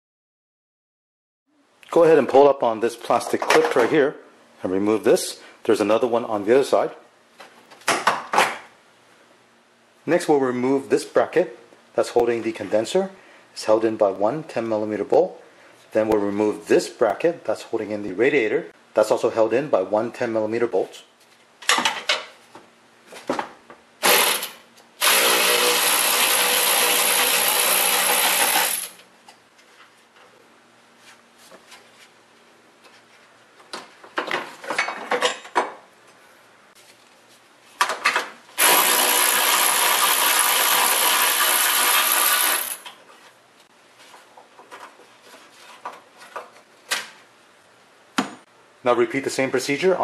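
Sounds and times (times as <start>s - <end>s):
power driver spinning bolts: 38.6s - 42.9s.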